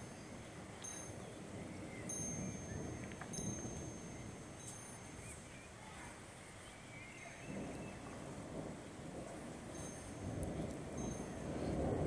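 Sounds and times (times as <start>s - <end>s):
faint chirps: 0.0s - 8.3s
wind blowing: 0.0s - 12.0s.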